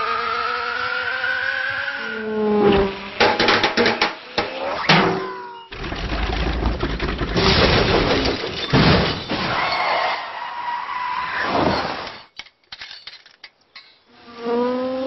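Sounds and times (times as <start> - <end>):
loud crash with smashing: 4.8 - 9.8.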